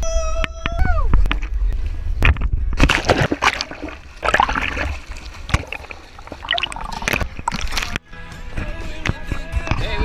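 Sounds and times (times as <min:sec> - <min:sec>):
swimmer splashing sea water: 0:02.8 - 0:08.0.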